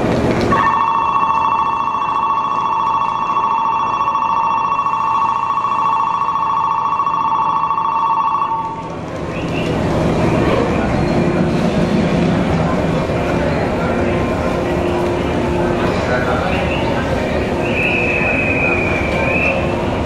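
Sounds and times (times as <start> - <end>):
electronic bell trilling: 0.6 - 8.7.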